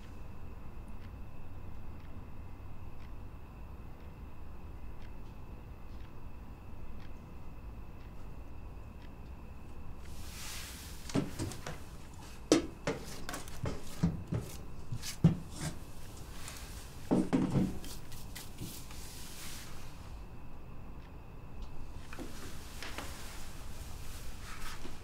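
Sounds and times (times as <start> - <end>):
objects handled on wooden desk: 12.5 - 15.8.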